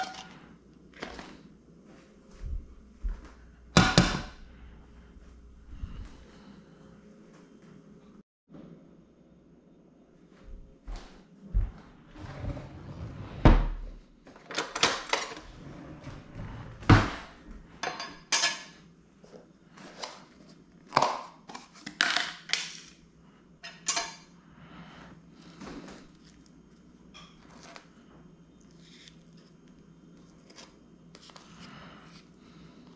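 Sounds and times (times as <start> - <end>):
plastic tub on stone countertop: 25.4 - 32.9.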